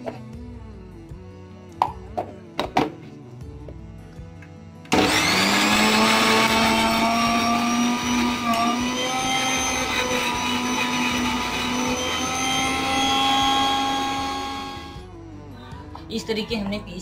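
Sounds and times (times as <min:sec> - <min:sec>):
mixer grinder motor whining: 0:04.9 - 0:15.1.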